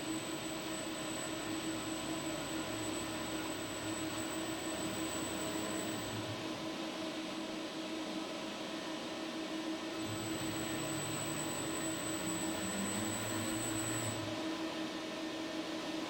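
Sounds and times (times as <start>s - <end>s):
constant machine hum: 0.0s - 16.0s
robot arm servo motors whining: 0.1s - 6.4s, 10.0s - 14.2s.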